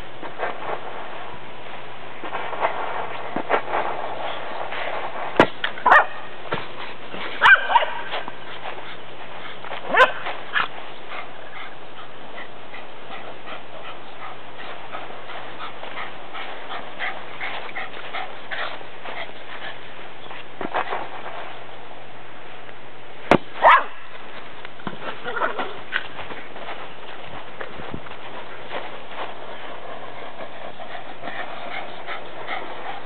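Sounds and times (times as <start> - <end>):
small dog barking: 5.8 - 6.2, 7.4 - 8.1, 9.9 - 10.7, 23.6 - 24.0.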